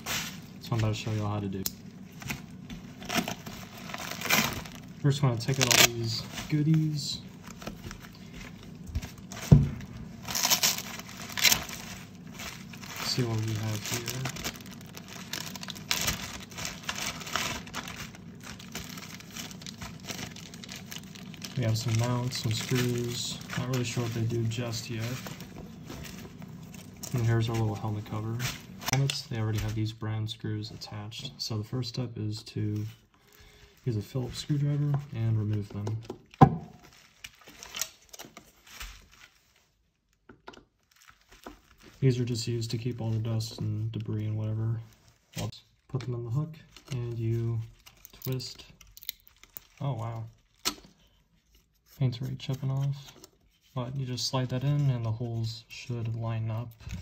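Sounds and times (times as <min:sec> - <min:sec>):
plastic bags crinkling: 0:00.0 - 0:29.4, 0:36.7 - 0:40.2, 0:40.8 - 0:46.0, 0:46.7 - 0:51.8.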